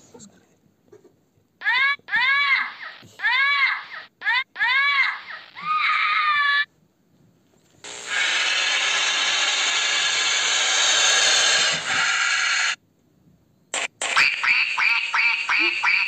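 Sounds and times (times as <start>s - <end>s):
parrot harsh calls: 1.6s - 6.7s, 8.1s - 12.8s, 14.2s - 16.0s
snake hissing: 7.9s - 12.8s.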